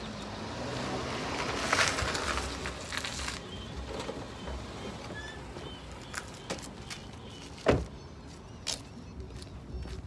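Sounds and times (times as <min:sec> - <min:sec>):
car pulling in to park: 0:00.0 - 0:06.7.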